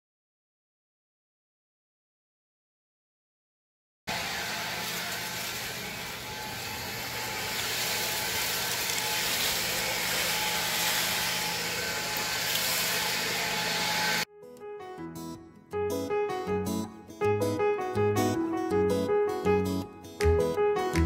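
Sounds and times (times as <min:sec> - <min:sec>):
leaf blower running: 0:04.1 - 0:14.3.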